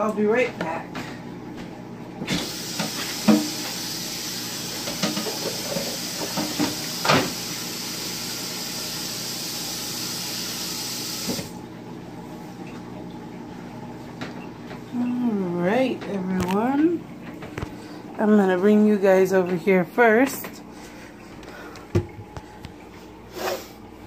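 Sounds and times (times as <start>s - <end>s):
tap water running into sink: 2.2s - 11.6s
things knocking in sink: 2.4s - 3.6s, 4.8s - 7.4s, 21.9s - 22.4s.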